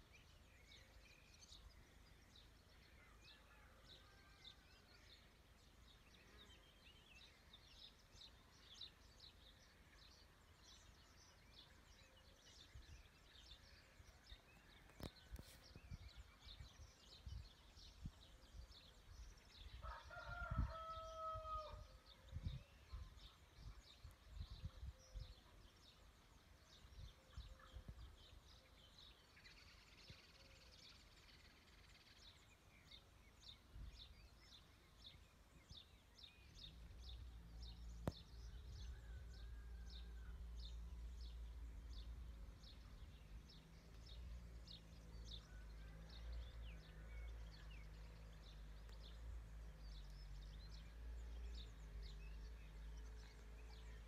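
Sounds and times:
rooster crowing: 19.8s - 21.8s.

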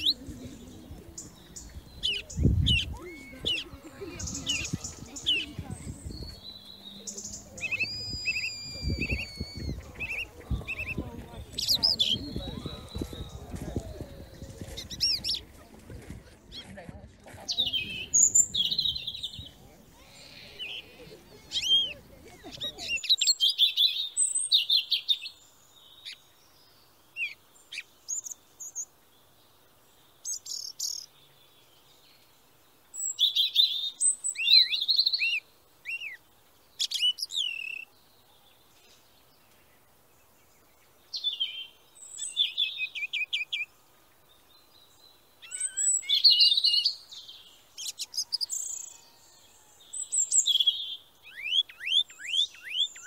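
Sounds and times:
songbirds chirping: 0.0s - 53.0s.

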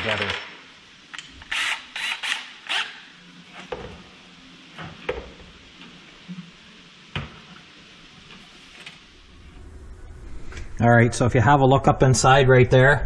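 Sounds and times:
cordless drill bursts: 1.4s - 3.0s.

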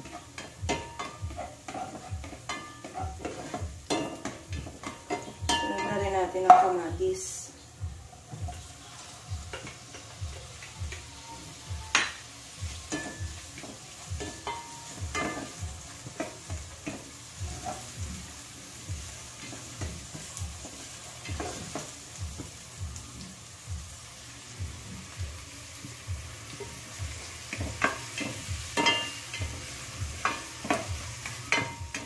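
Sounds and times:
light sizzle of frying: 0.0s - 32.0s
wooden spatula scraping pot: 1.3s - 5.2s.

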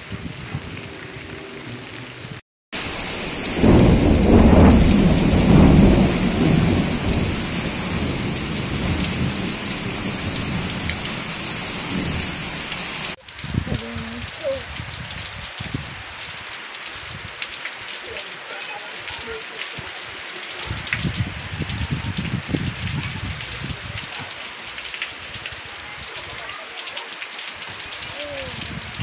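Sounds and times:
heavy rain on a tiled roof: 0.0s - 29.0s
thunder rumbling: 2.8s - 15.9s.

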